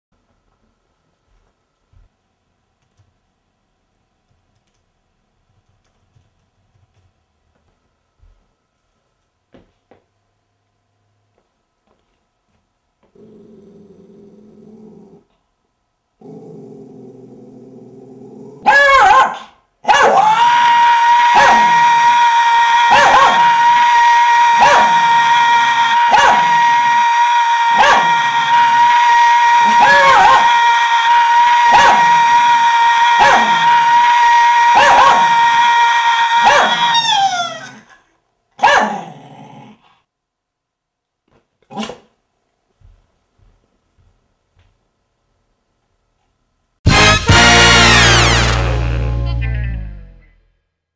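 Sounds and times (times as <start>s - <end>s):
dog growling low: 13.0s - 15.4s, 16.2s - 18.6s, 38.9s - 40.0s
poodle barking: 18.6s - 20.2s, 38.6s - 39.0s
man screaming: 20.2s - 37.7s.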